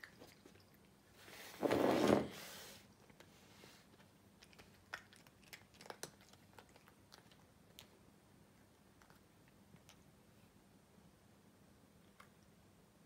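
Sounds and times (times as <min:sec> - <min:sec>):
cats crunching treats: 0:03.0 - 0:10.1.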